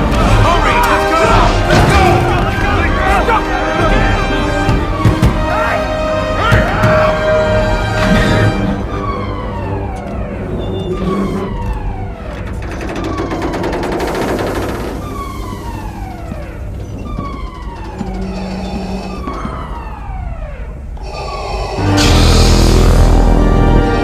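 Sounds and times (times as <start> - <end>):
alarm falling tone: 14.8 - 23.8.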